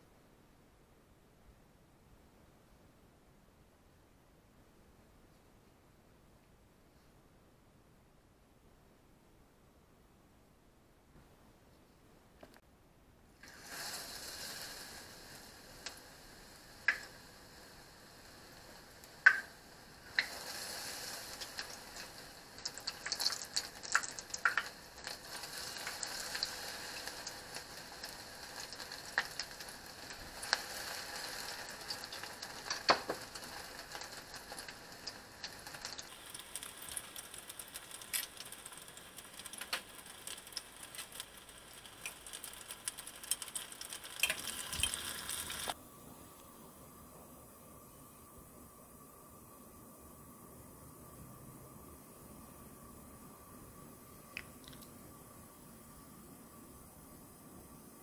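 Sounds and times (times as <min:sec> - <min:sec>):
oil crackling and popping: 0:13.4 - 0:45.8, 0:54.3 - 0:55.1
food deep-frying in hot oil: 0:13.4 - 0:58.0.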